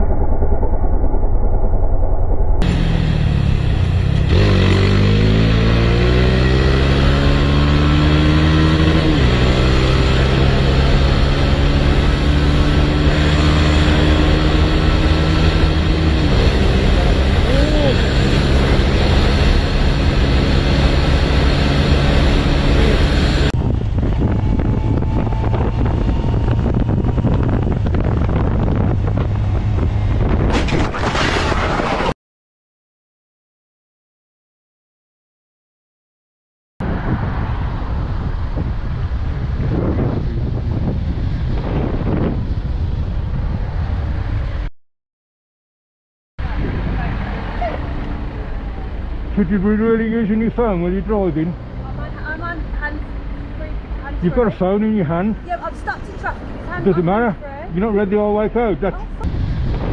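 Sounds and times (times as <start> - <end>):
motorcycle engine accelerating: 0.0 - 30.6
wind buffeting microphone: 21.8 - 31.2, 36.8 - 44.7, 46.4 - 49.2, 58.9 - 59.9.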